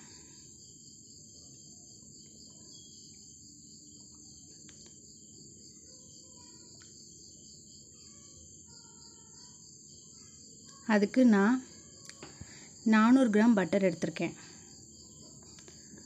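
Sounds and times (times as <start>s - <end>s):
crickets chirping: 0.0s - 16.0s.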